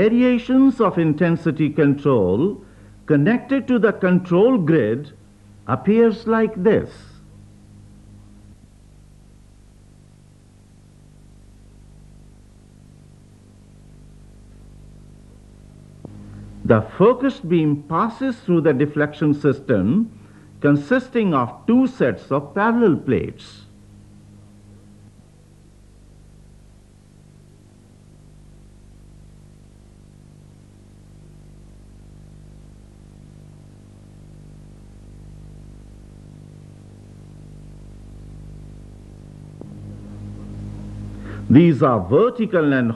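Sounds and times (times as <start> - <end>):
faint hiss: 0.0 - 42.9
low electrical hum: 0.0 - 42.9.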